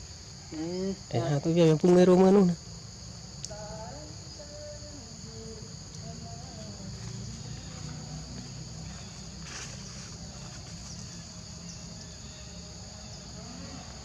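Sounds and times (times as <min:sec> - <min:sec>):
insects droning: 0:00.0 - 0:14.0.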